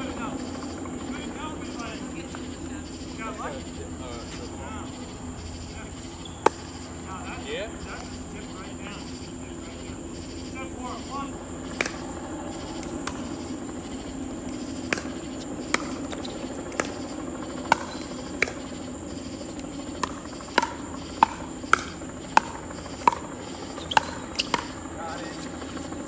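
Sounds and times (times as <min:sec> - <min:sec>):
ball popping off paddles: 0:06.4 - 0:06.8, 0:11.7 - 0:12.2, 0:12.8 - 0:26.0.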